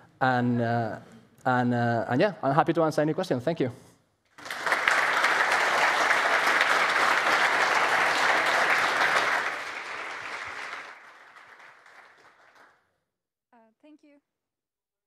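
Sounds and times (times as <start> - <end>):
audience applauding: 4.4 - 12.8.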